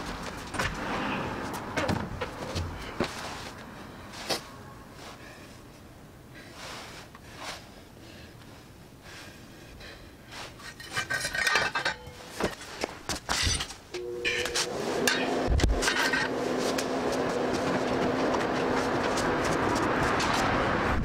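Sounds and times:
hands handling tyre in metal chock: 0:10.6 - 0:16.9.

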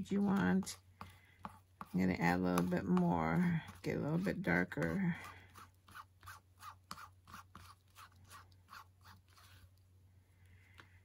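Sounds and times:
stick stirring paste: 0:00.0 - 0:10.0.

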